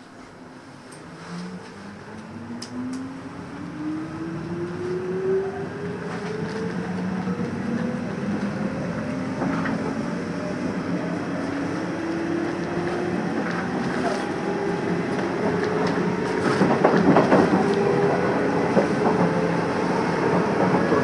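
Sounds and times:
train wheel and running noise: 0.0s - 21.0s.

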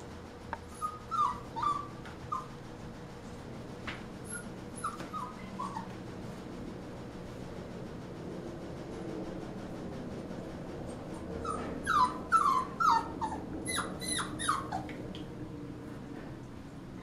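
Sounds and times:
puppy crying: 0.7s - 2.5s, 4.2s - 6.0s, 11.4s - 15.0s.

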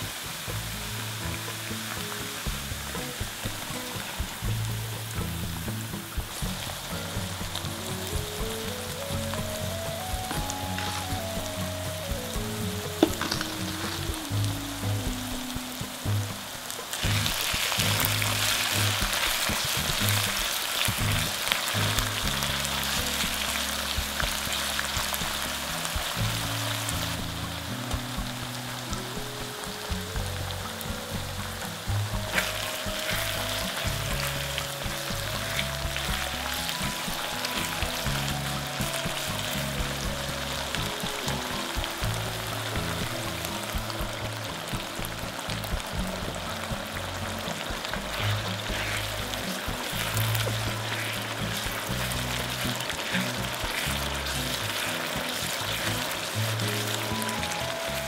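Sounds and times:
meat sizzling in a frying pan: 0.0s - 58.0s
soft background music: 0.0s - 58.0s
spatula scraping wok: 45.0s - 58.0s.

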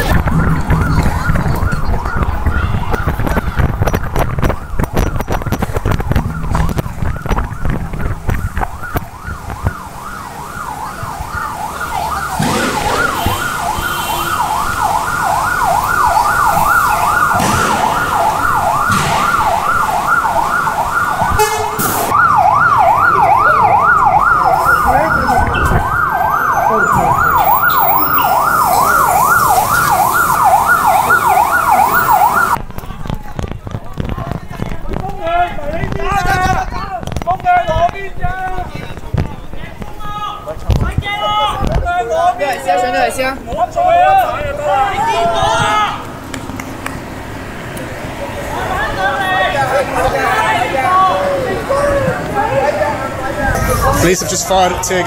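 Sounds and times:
emergency siren wailing: 0.0s - 32.6s, 44.1s - 55.0s
street bustle: 0.0s - 55.0s.

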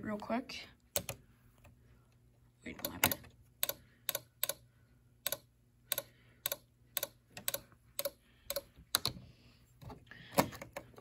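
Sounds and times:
sharp plastic clicks: 5.2s - 9.2s.

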